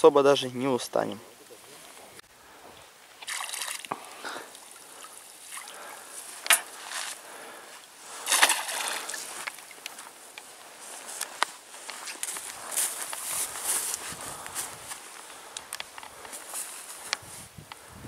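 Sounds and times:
water sloshing and trickling: 0:02.8 - 0:07.2, 0:08.1 - 0:09.8
water splashes: 0:03.1 - 0:07.2, 0:08.1 - 0:09.8.

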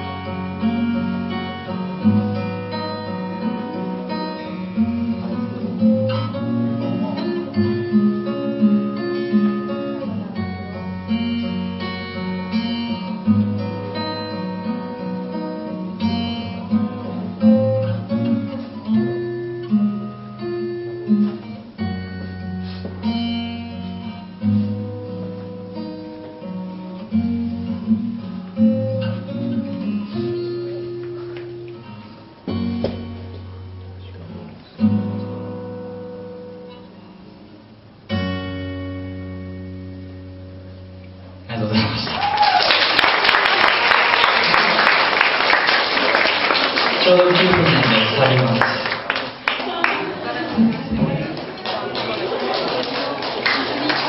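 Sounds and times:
acoustic guitar strummed and picked: 0:00.0 - 0:42.1.

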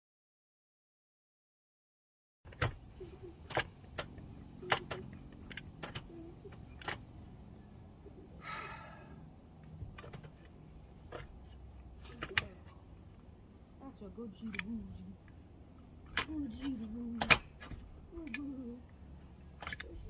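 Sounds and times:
tool clicks and knocks on metal: 0:19.6 - 0:20.0.

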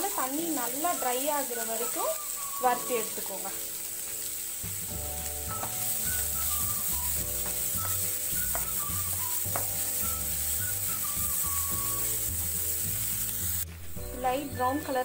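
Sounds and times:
wooden spatula stirring in pan: 0:00.0 - 0:13.8
onions sizzling in oil: 0:00.0 - 0:15.0
background music with bass line: 0:04.7 - 0:15.0.

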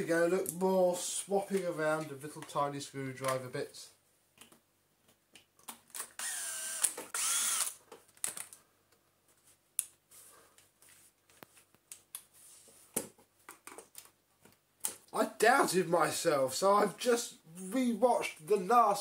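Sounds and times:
small clicks and taps of parts: 0:04.4 - 0:06.1, 0:12.9 - 0:15.1
electric screwdriver whining: 0:06.2 - 0:07.8.

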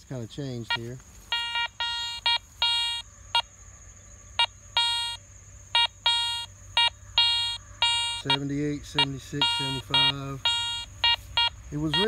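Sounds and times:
metal detector beeping: 0:00.6 - 0:03.0, 0:04.4 - 0:05.2, 0:05.8 - 0:12.0.

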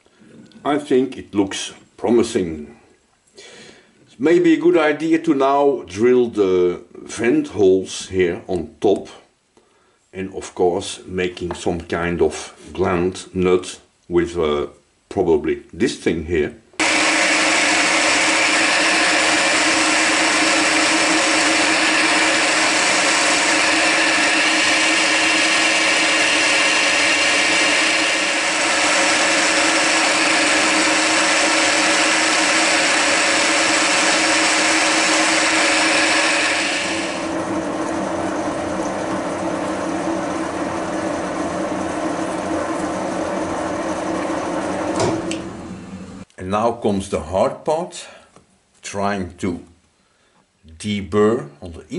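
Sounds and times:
drill bit cutting metal hissing: 0:16.8 - 0:45.9
milling machine spindle whirring: 0:16.8 - 0:46.2.

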